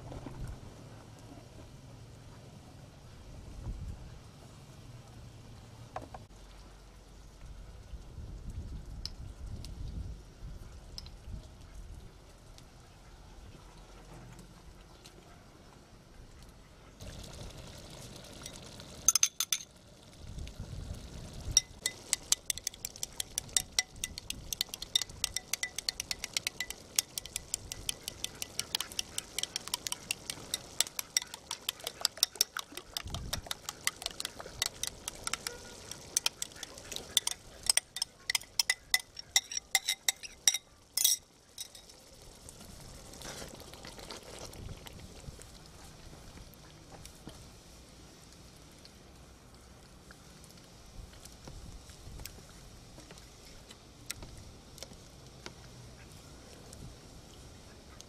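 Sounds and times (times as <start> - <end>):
metal spoon clinking glass bowl: 18.5 - 19.7, 21.6 - 41.9.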